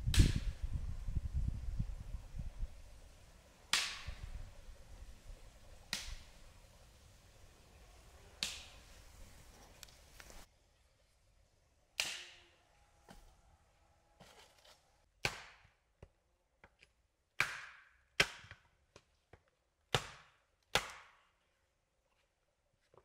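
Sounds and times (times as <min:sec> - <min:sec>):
hatchet chopping log: 0:12.0 - 0:12.3, 0:15.2 - 0:15.8, 0:17.4 - 0:19.1, 0:19.9 - 0:21.2.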